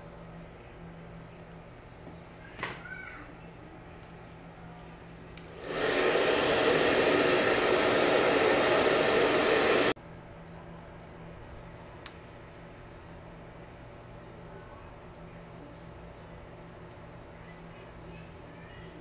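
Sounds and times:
electric blower rushing air: 5.5s - 10.0s.

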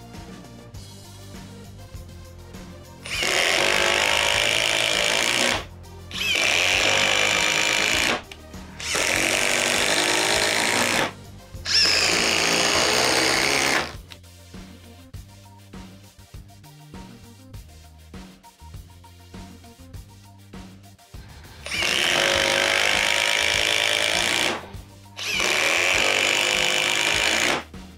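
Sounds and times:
music playing: 0.0s - 27.9s
impact driver hammering: 3.1s - 11.1s, 11.7s - 14.0s, 21.7s - 24.6s, 25.2s - 27.7s.

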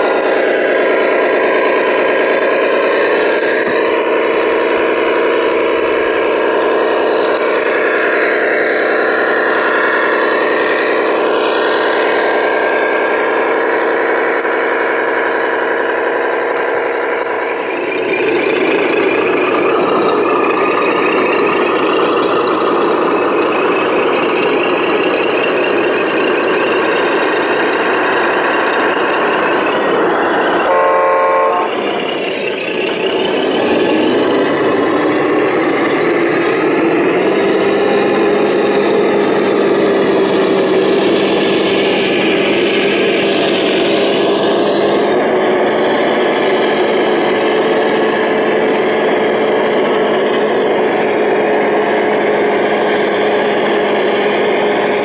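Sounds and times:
model truck diesel engine sound: 0.0s - 55.0s
truck horn: 30.6s - 32.0s.

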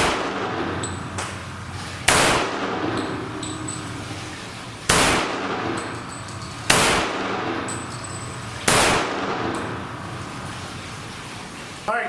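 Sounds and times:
pistol shots with echo: 0.0s - 0.8s, 2.1s - 3.0s, 4.9s - 5.9s, 6.7s - 7.7s, 8.6s - 9.8s.

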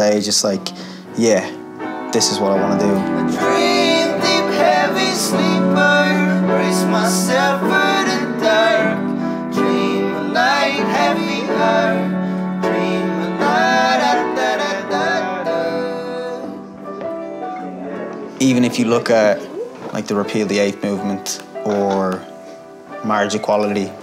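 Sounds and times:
upright piano: 0.0s - 24.0s
person singing: 2.6s - 18.4s.

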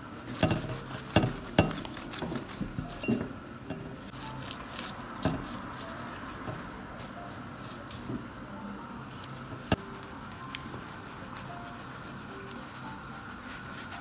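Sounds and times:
pastry brush dabbing oil: 0.3s - 3.3s, 4.1s - 8.2s, 9.0s - 14.0s.

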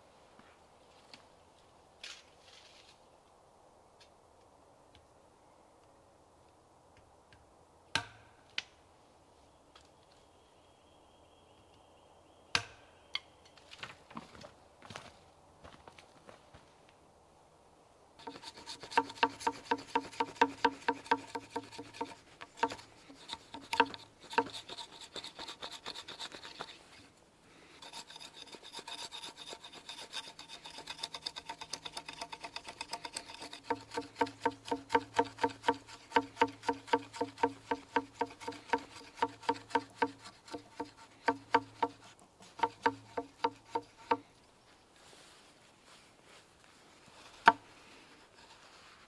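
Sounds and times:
knife scraping bark off stick: 18.2s - 26.9s, 27.8s - 44.2s.

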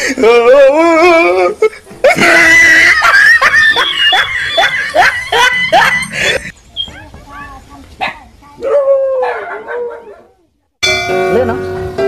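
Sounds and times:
high-pitched laughter: 2.0s - 6.5s.

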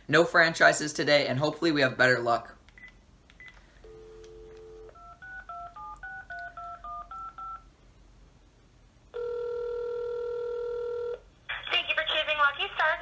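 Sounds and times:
telephone dial tone: 3.4s - 7.6s, 9.2s - 11.2s
telephone ringback tone: 3.8s - 7.7s, 9.1s - 11.2s.

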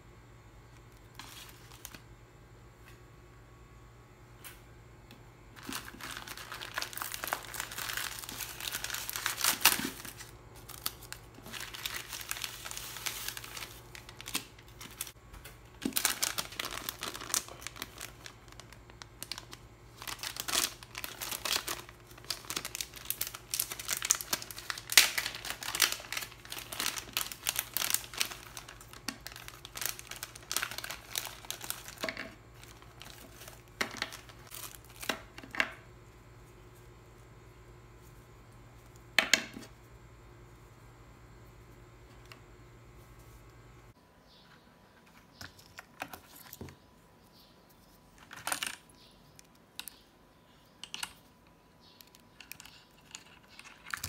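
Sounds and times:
plastic packaging crinkling: 0.9s - 2.1s, 5.6s - 35.8s, 52.1s - 54.0s
plastic tearing: 5.6s - 15.2s, 15.8s - 35.6s.

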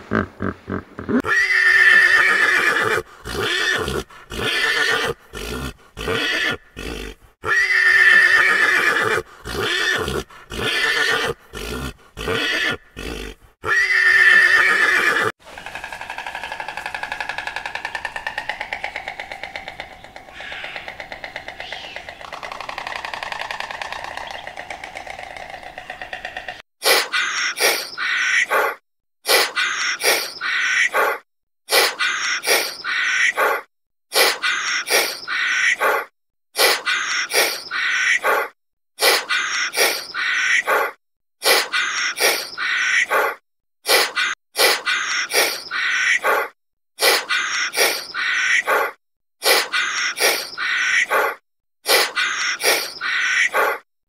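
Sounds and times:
wavering pitched animal call: 13.6s - 26.4s
harsh bird calls: 14.0s - 28.6s, 47.3s - 48.8s, 49.7s - 51.3s, 52.0s - 53.8s.

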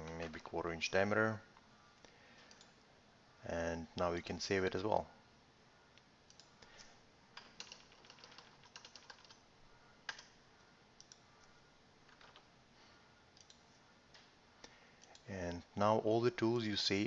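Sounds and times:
keyboard keys clicking: 7.4s - 9.4s, 12.1s - 12.4s.

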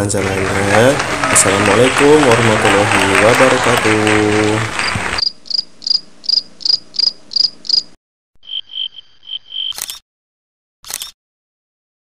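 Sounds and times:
crickets chirping: 5.2s - 9.8s.

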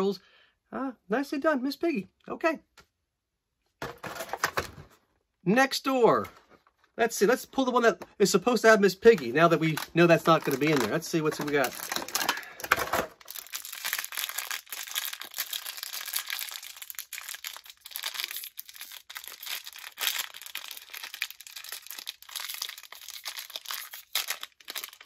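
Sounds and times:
plastic wrapper crinkling: 8.6s - 25.0s.

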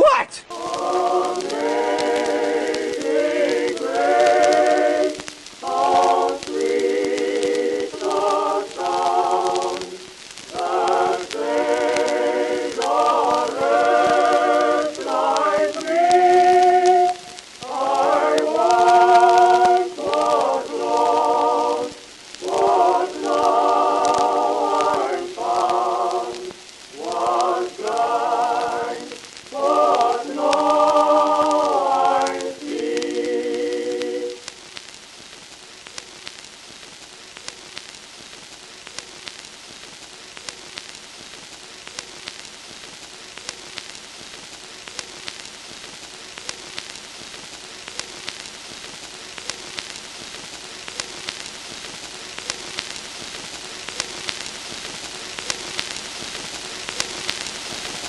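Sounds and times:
choir singing a cappella: 0.5s - 34.4s.

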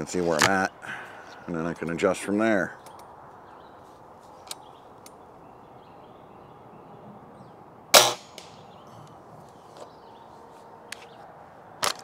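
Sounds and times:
birds chirping faintly: 0.0s - 11.7s
air rifle shot: 7.9s - 8.6s.

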